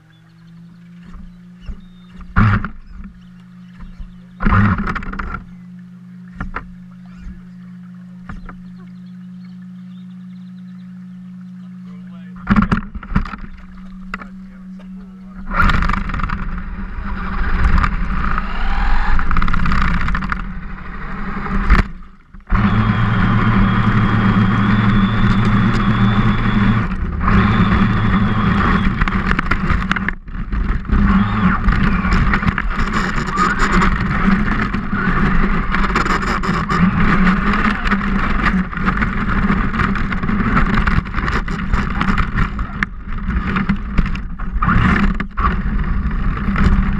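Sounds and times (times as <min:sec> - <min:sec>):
water splashing: 0:00.0 - 0:46.9
toy truck motor whining: 0:17.0 - 0:20.4, 0:22.5 - 0:29.3, 0:30.9 - 0:38.5.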